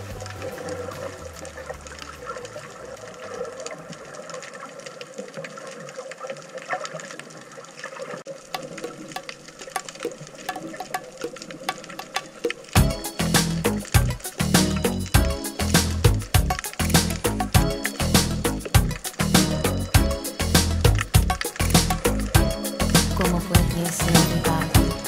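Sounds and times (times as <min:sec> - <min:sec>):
muffled underwater water wash: 0:00.0 - 0:19.1
underwater clicks and crackles: 0:00.2 - 0:12.8, 0:13.5 - 0:18.0, 0:20.8 - 0:23.1.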